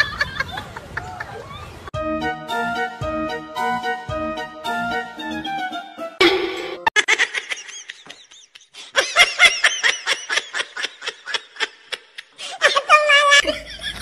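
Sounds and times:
person laughing hard: 6.2s - 14.0s.

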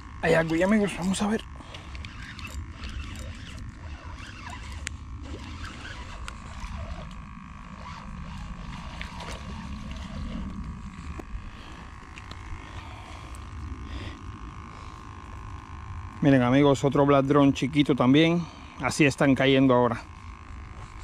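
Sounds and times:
fishing reel cranking: 0.2s - 12.4s
low rumble: 4.8s - 16.2s.

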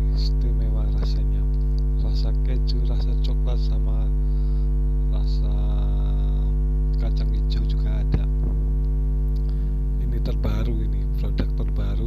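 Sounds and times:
electrical mains hum: 0.0s - 12.0s.

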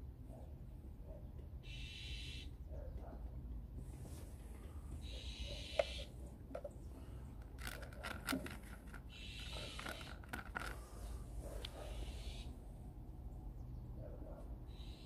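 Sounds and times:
scraping handling noises: 5.8s - 11.8s.

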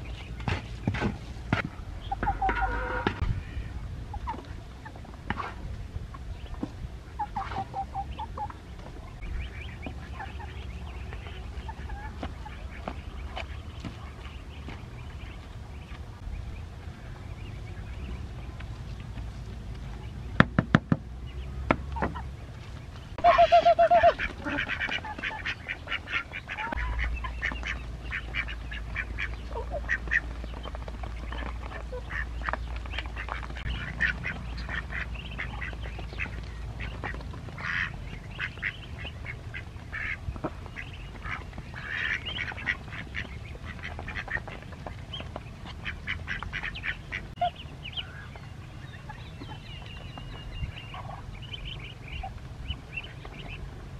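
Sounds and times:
baby waterfowl peeping: 2.0s - 20.6s, 21.2s - 53.7s
sharp knocks: 20.4s - 21.1s.

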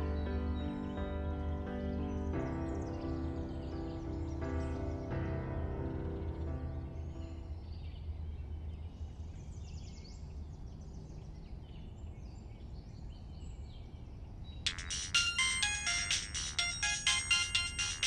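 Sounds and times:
faint high chirps: 14.7s - 18.0s
phone ringtone melody: 14.7s - 18.0s.

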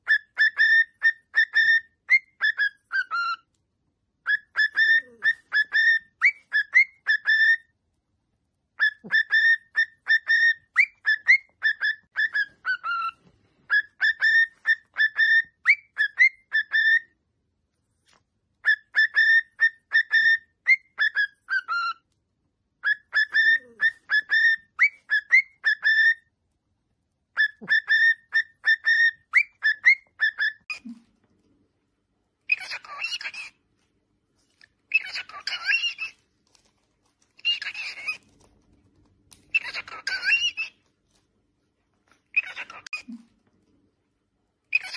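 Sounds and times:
cockatiel whistling: 0.0s - 3.5s, 4.2s - 7.7s, 8.8s - 17.2s, 18.6s - 22.1s, 22.8s - 26.3s, 27.4s - 31.0s, 32.5s - 33.6s, 34.9s - 36.2s, 37.4s - 38.2s, 39.5s - 40.8s, 42.3s - 43.2s.

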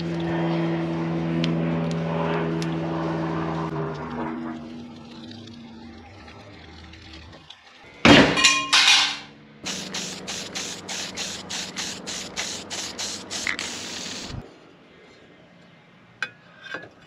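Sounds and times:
spray paint can hissing: 9.6s - 14.4s.

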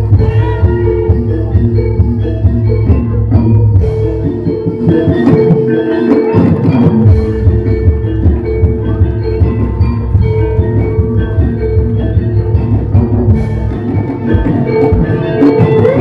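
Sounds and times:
metallophones ringing: 0.0s - 16.0s
low drum beat: 6.6s - 16.0s.

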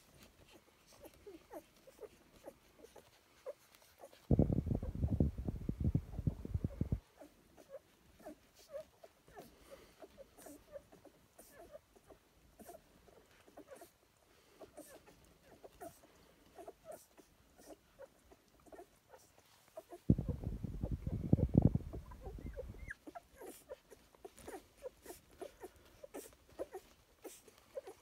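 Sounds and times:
puppies squeaking: 21.8s - 28.0s.

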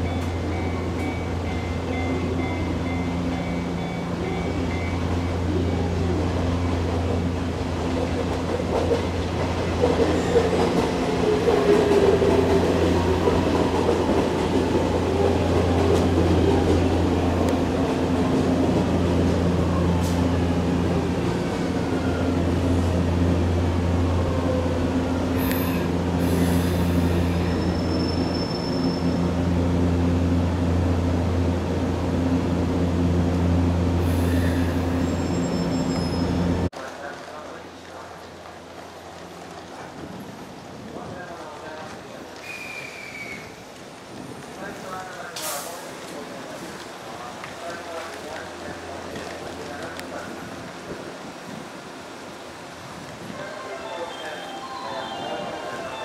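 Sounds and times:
electric train hum: 0.0s - 36.7s.

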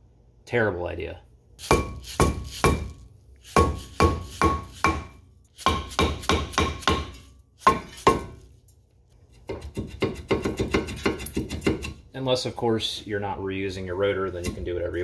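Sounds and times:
hammer striking metal rotor: 1.6s - 2.9s, 3.5s - 8.4s.

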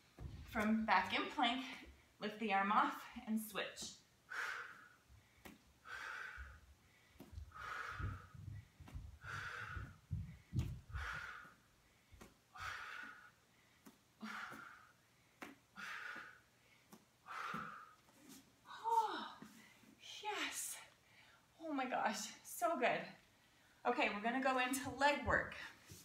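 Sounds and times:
soft low thumps: 0.0s - 2.0s, 6.4s - 11.5s.

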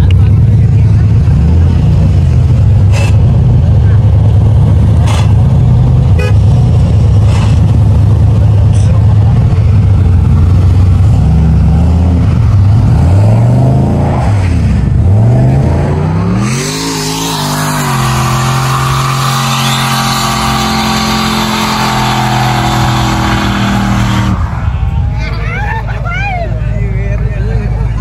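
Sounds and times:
engine revving: 0.0s - 25.1s
tires spinning with hiss: 9.2s - 25.4s.

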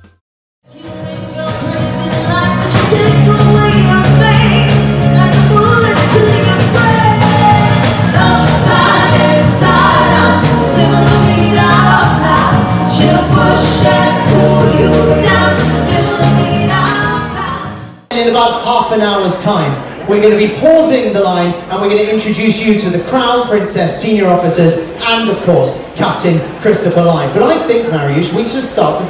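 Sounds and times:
drum kit beat: 0.0s - 18.1s
bass guitar: 0.0s - 18.2s
keyboard: 0.7s - 18.7s
women singing together: 0.8s - 17.8s.

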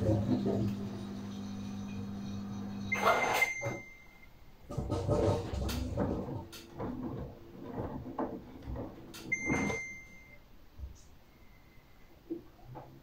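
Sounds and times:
washing machine hum: 0.0s - 11.3s
washing machine beep: 0.3s - 4.3s, 9.2s - 10.5s.

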